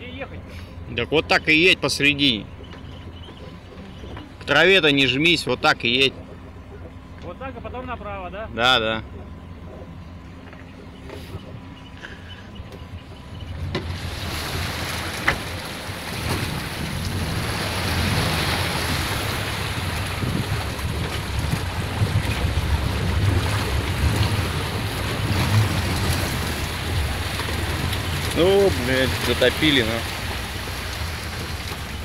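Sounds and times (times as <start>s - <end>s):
car engine running: 0.0s - 32.0s
water rushing and splashing: 13.1s - 32.0s.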